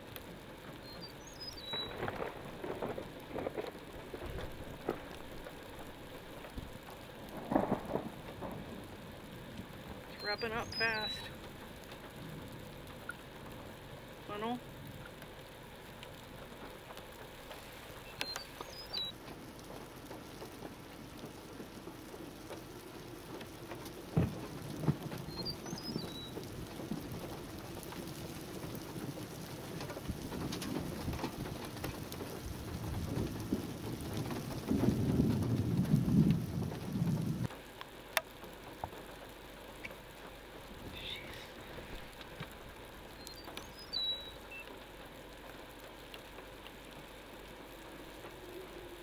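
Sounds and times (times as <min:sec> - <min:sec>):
steady rain: 0:00.0 - 0:49.0
low thunder rumble: 0:00.3 - 0:15.6, 0:18.0 - 0:37.5
bird chirps: 0:00.8 - 0:02.0, 0:10.2 - 0:11.3, 0:18.0 - 0:19.1, 0:25.3 - 0:26.4, 0:43.2 - 0:44.8.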